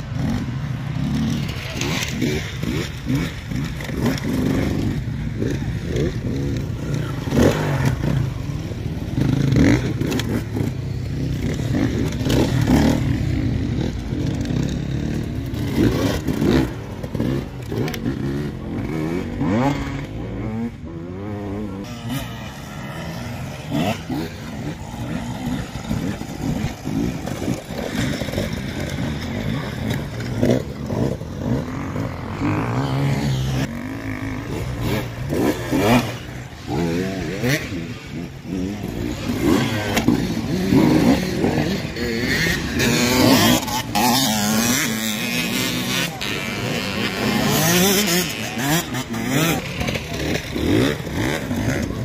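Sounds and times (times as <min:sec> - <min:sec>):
dirt bike engines revving: 0:00.0 - 0:52.0.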